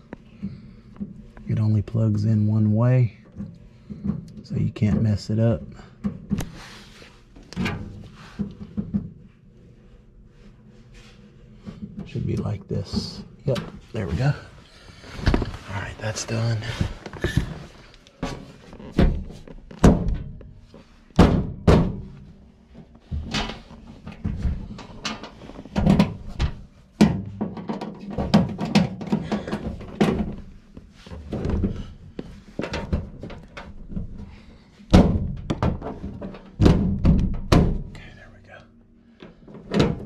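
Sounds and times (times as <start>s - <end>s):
steady low hum: 0.0s - 40.0s
hollow metal panel thunks: 21.2s - 22.3s, 34.9s - 37.9s.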